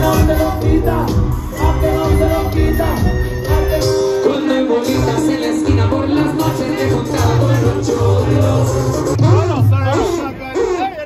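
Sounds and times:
heavy pulsing bass: 0.0 - 3.9
band music with singing: 0.0 - 11.0.

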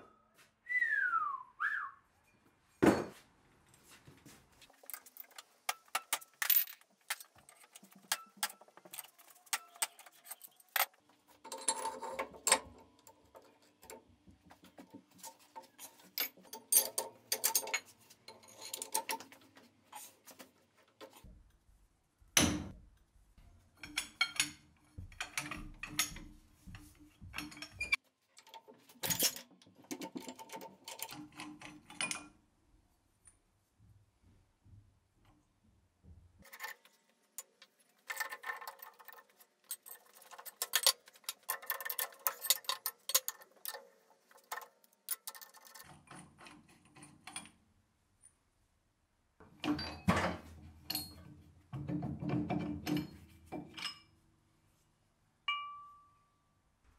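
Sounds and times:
metallic clicks and clinks of tools: 15.7 - 19.4, 23.8 - 24.6, 36.4 - 47.6, 50.9 - 51.3.

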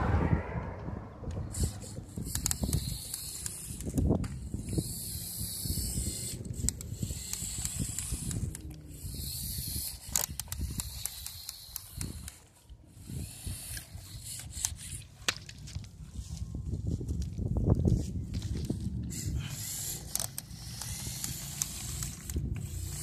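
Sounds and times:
small clicks: 1.3 - 12.8, 19.6 - 23.0
plastic gears whirring: 1.4 - 16.0, 17.2 - 23.0.

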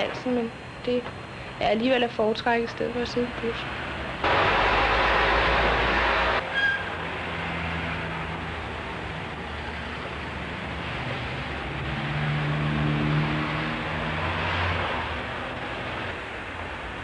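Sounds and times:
bus engine hum: 0.0 - 17.0
traffic rumble: 0.0 - 17.0
high-pitched squeak: 6.5 - 6.9.

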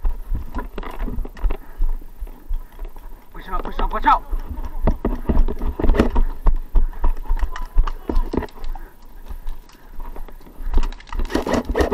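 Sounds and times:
footsteps on gravel: 0.0 - 11.9.

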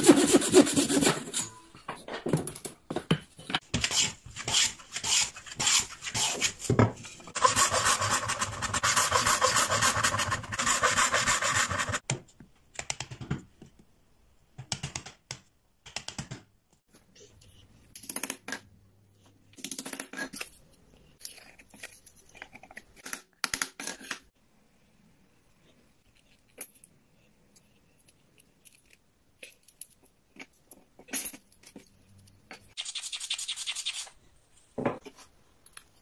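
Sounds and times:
hand saw cutting wood: 0.0 - 1.4, 7.4 - 12.0.

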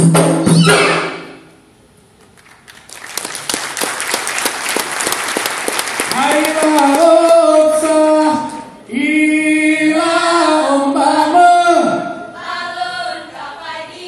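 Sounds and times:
group singing in unison: 9.0 - 14.0.

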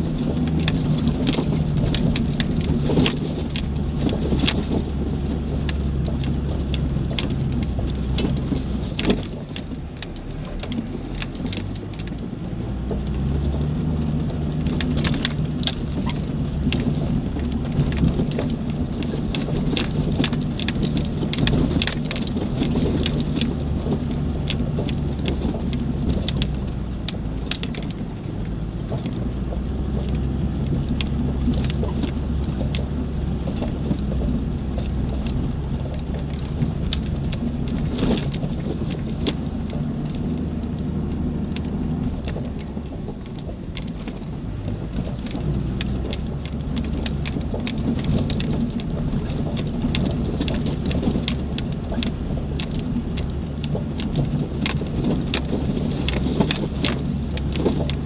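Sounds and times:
tyres crunching on gravel: 0.0 - 58.0
vehicle engine under load: 0.0 - 58.0
stones clicking and rattles: 12.9 - 58.0.

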